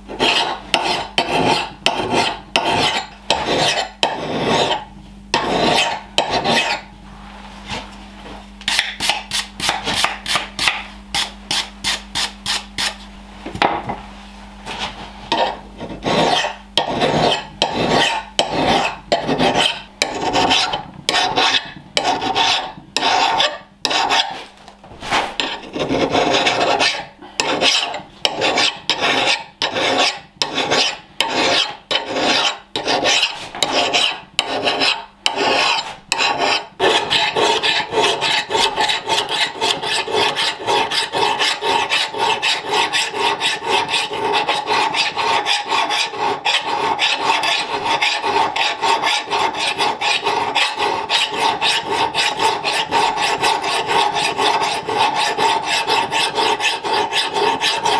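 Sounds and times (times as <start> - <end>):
steel file rasping on metal: 0.1 - 6.9, 15.3 - 24.4, 25.1 - 57.9.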